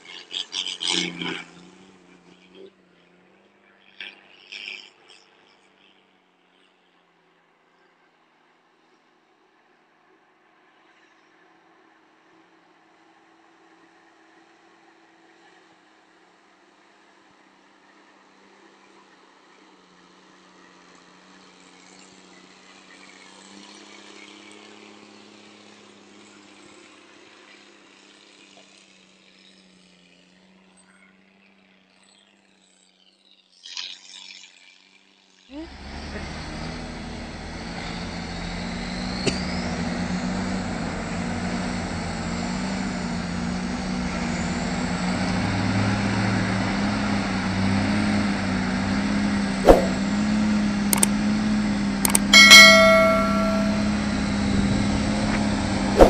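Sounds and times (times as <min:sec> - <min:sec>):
truck engines droning: 0:35.5 - 0:56.0
road noise: 0:35.6 - 0:56.0.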